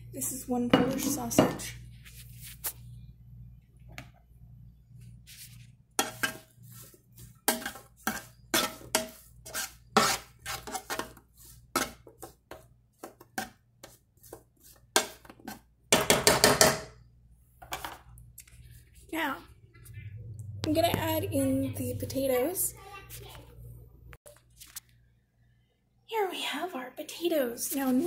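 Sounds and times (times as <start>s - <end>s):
utensil scraping a frying pan: 5.4s - 15.7s.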